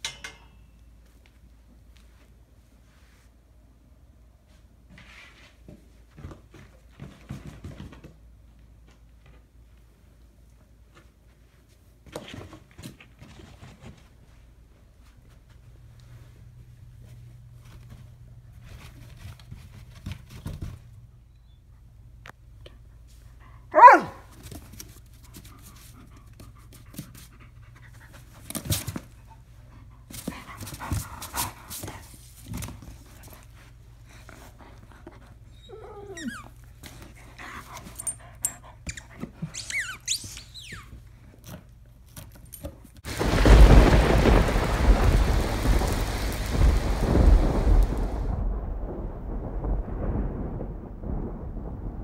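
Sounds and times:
dog barking: 0:23.7 - 0:24.3
deep rumbling sound effect: 0:43.4 - 0:52.0.

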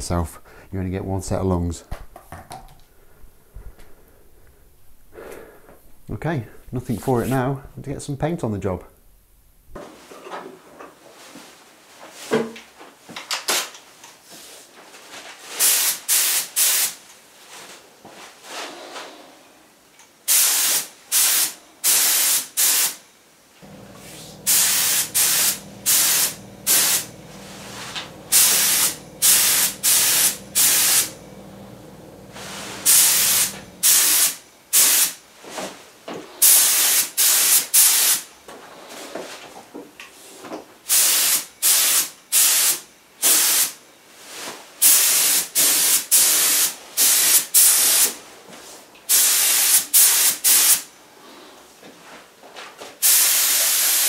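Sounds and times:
spray gun hissing bursts: 0:20.3 - 0:23.0, 0:23.6 - 0:35.1, 0:53.0 - 0:54.0.

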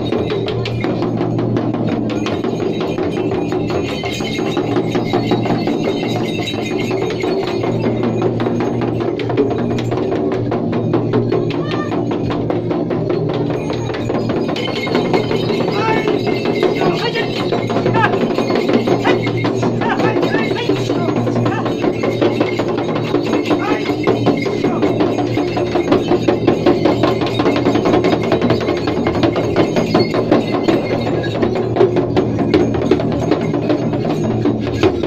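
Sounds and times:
frame drums beaten fast: 0:00.0 - 0:35.0
voices: 0:11.4 - 0:12.2, 0:13.1 - 0:27.6.

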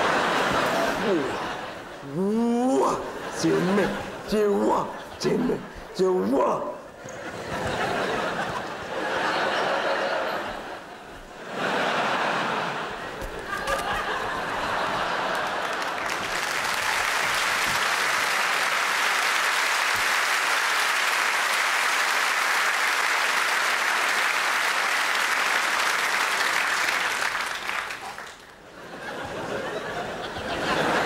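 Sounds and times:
audience applauding: 0:00.0 - 0:01.7, 0:11.8 - 0:29.2.

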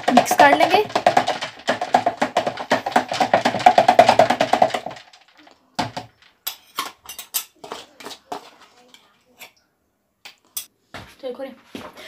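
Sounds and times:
spoon clacking in plastic jug: 0:00.0 - 0:05.0, 0:05.8 - 0:09.5.

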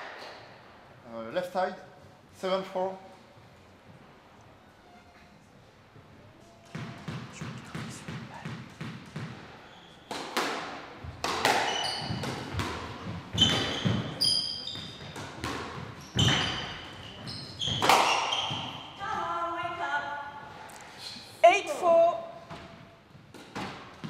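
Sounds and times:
shoes squeaking on court: 0:06.5 - 0:10.4, 0:11.0 - 0:19.0
squash ball bouncing on floor: 0:06.6 - 0:09.5, 0:10.1 - 0:19.2
racket striking ball: 0:06.6 - 0:14.1, 0:15.0 - 0:16.6, 0:17.7 - 0:18.8
ball smacking walls: 0:10.1 - 0:14.2, 0:17.6 - 0:18.8.

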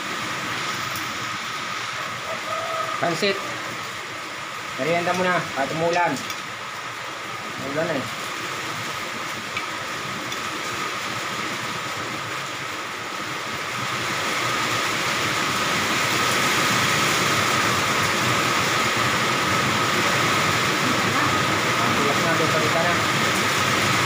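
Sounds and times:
steady rain falling: 0:00.0 - 0:24.0.

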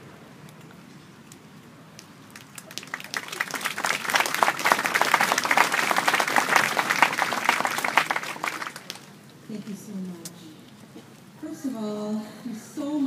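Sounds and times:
audience applause: 0:02.3 - 0:09.1.

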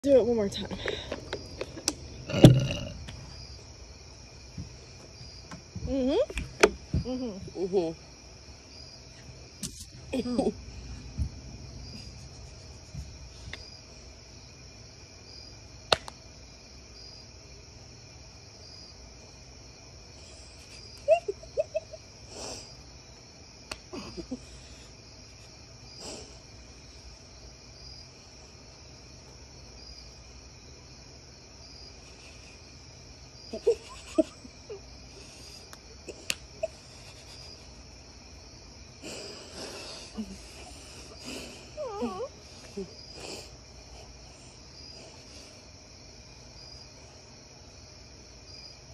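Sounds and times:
crickets chirping: 0:00.0 - 0:48.9
sharp smacks: 0:15.9 - 0:16.2, 0:23.7 - 0:23.9.

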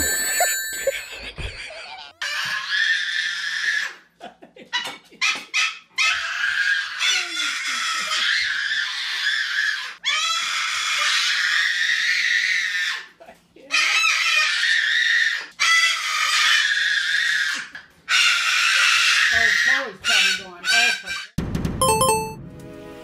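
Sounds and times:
cockatoo screeching: 0:02.2 - 0:04.0, 0:05.2 - 0:13.1, 0:13.7 - 0:21.3
toddler screaming: 0:02.2 - 0:04.0, 0:06.0 - 0:13.0, 0:13.7 - 0:19.9.

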